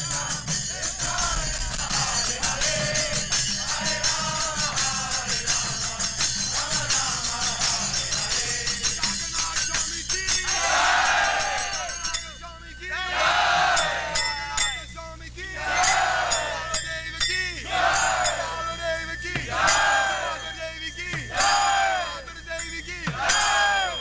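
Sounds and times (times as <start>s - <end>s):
drum beat: 0.0s - 12.2s, 19.2s - 20.4s, 21.0s - 24.0s
hand cymbals jingling: 0.0s - 12.8s, 13.8s - 24.0s
men chanting: 0.0s - 24.0s
group shout: 10.4s - 12.0s, 13.0s - 14.4s, 15.6s - 16.8s, 17.7s - 18.6s, 19.5s - 20.5s, 21.3s - 22.2s, 23.1s - 24.0s.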